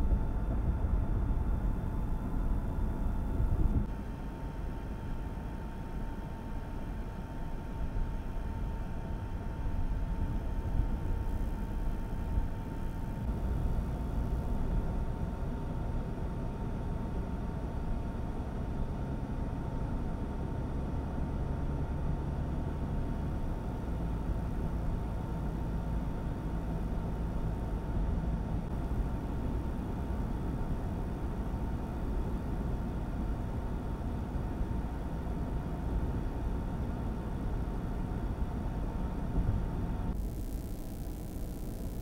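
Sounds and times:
car engine and tyre rumble: 0:00.0 - 0:04.8, 0:07.7 - 0:41.9
thin steady tone: 0:40.1 - 0:42.0.

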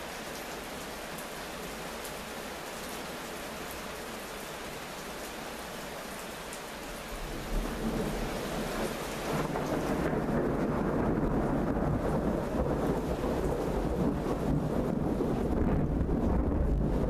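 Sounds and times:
steady rain falling: 0:00.0 - 0:17.0
thunder rumbling: 0:07.2 - 0:17.0.

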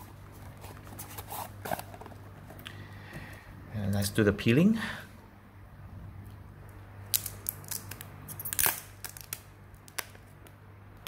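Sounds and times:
plastic film peeling crinkling: 0:07.0 - 0:10.6.

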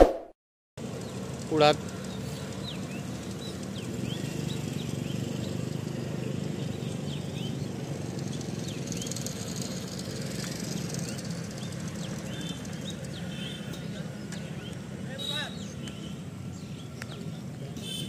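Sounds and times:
distant vehicles rumbling: 0:00.8 - 0:18.0
bird chirps: 0:08.3 - 0:18.0.

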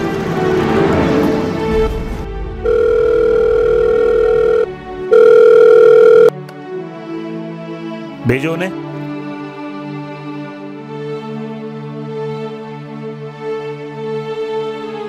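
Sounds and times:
background music: 0:00.0 - 0:15.0
telephone ringing: 0:02.6 - 0:06.4.

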